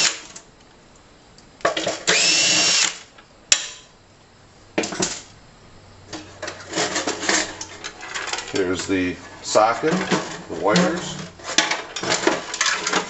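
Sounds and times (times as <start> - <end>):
cordless drill whining: 0.0 - 0.2, 2.0 - 3.1
light metal clatter: 6.1 - 9.0.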